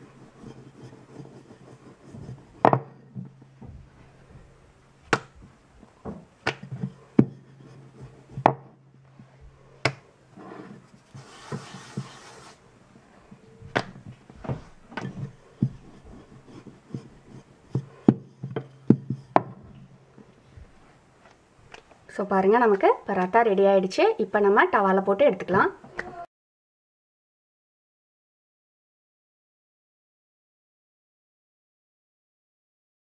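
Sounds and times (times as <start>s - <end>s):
dough rubbing: 0.0s - 21.2s
rolling pin knocking on stone: 0.2s - 12.5s, 13.6s - 20.2s.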